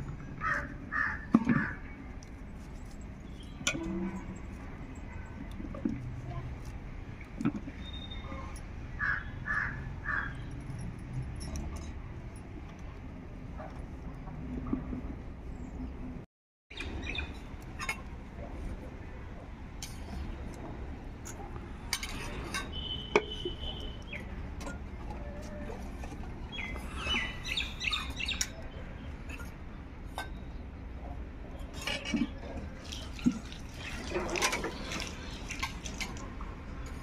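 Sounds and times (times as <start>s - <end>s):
birds chirping: 7.8s - 10.6s, 16.7s - 17.4s, 22.7s - 24.4s, 26.4s - 29.3s.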